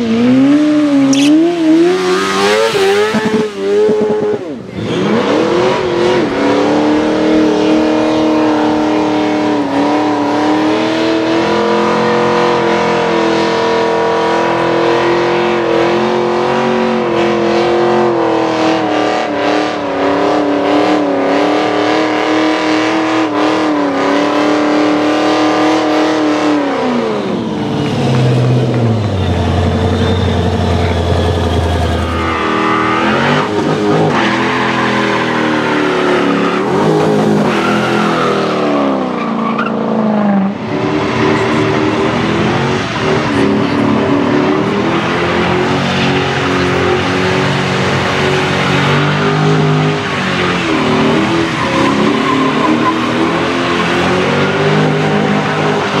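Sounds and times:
motorcycle engine revving: 0.0s - 16.7s
car engine at high revs: 0.0s - 56.0s.

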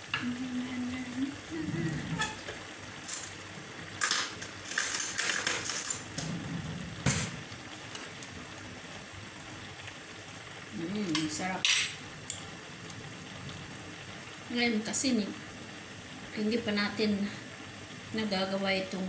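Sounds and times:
metal utensil scraping a pan: 2.0s - 2.5s.

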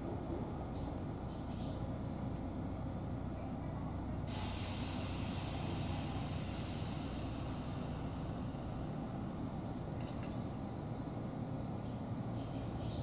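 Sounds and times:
compressed air hissing: 4.3s - 10.0s.

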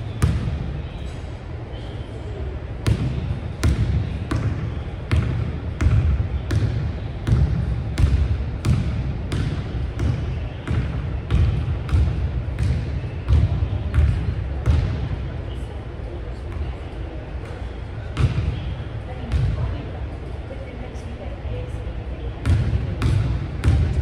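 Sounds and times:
basketball bouncing on wooden floor: 2.9s - 14.9s.

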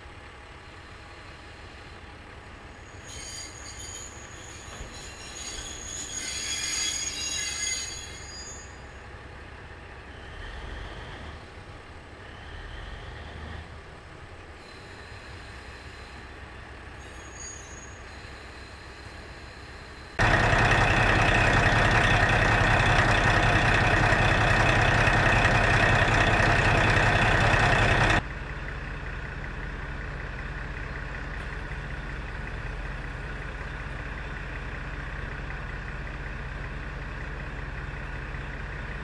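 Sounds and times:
diesel engine running: 20.2s - 39.0s.

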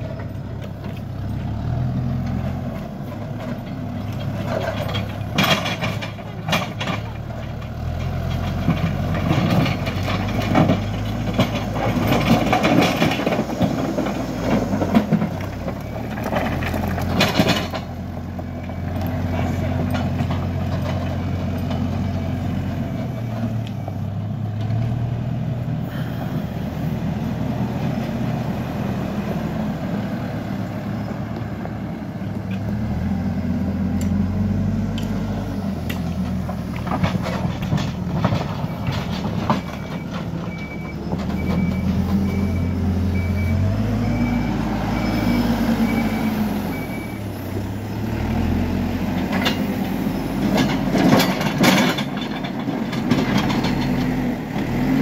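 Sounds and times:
backhoe diesel engine running: 0.0s - 55.0s
reversing alarm beeping: 38.6s - 47.4s.

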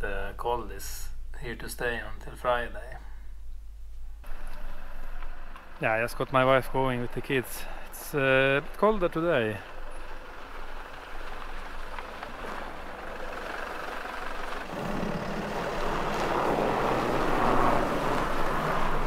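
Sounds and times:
car driving over snow: 4.3s - 7.4s, 8.1s - 19.0s.

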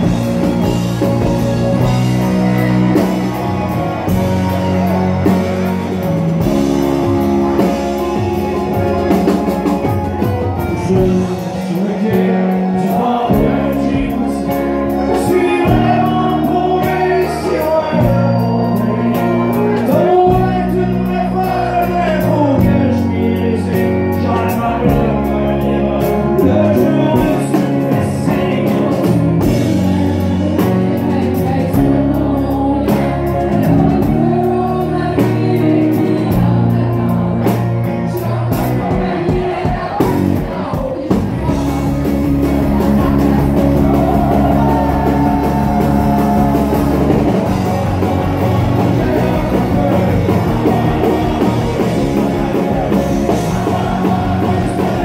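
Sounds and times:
drums: 0.0s - 55.0s
electric guitar: 0.0s - 55.0s
man singing: 7.5s - 55.0s
woman singing: 29.4s - 36.8s.

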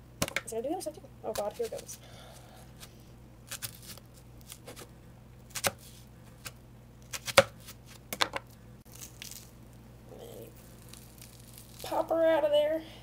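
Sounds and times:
knife cutting onion: 3.5s - 4.9s, 5.5s - 8.0s.

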